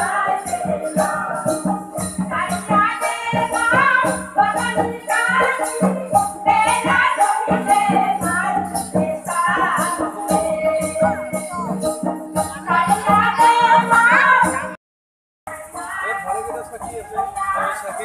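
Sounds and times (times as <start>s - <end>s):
shaker-like percussion: 0.0s - 14.8s, 15.5s - 18.0s.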